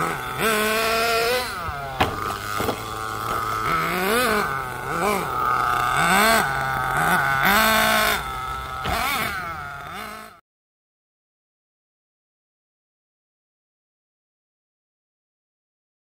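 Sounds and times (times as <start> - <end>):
small engine revving: 0.0 - 10.4.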